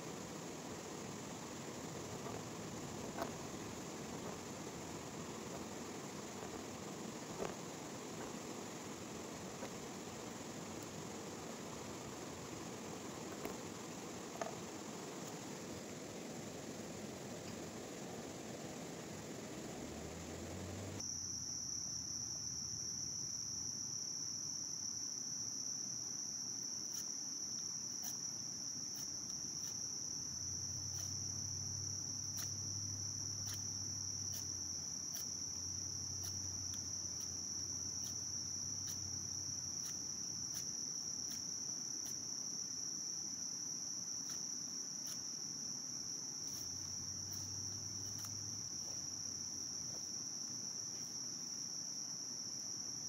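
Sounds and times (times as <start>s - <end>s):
insects chorus: 0.0s - 53.0s
knife shaving wooden stick: 0.4s - 17.4s, 26.6s - 43.1s, 43.8s - 51.6s.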